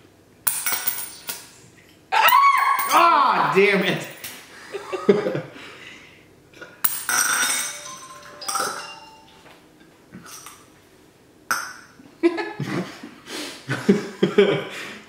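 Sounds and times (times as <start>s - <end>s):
coin clicking on tabletop: 0.5s - 1.4s
coin clinking into glass: 0.5s - 1.6s, 6.8s - 9.4s.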